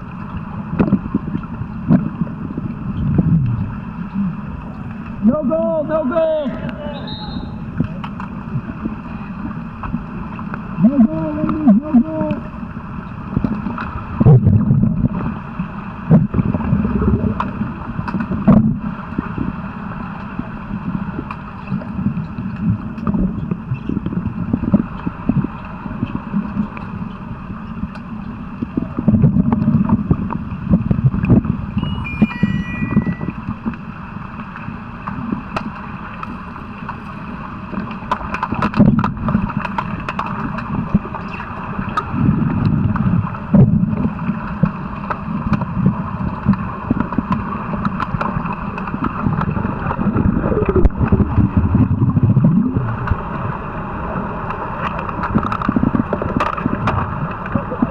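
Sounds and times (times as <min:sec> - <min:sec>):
underwater rush of water and bubbles: 0:00.0 - 0:57.9
knocks and clicks underwater: 0:00.2 - 0:05.2, 0:07.7 - 0:19.6, 0:20.2 - 0:31.7, 0:34.4 - 0:53.7, 0:54.4 - 0:57.9
high beeps: 0:31.8 - 0:33.4.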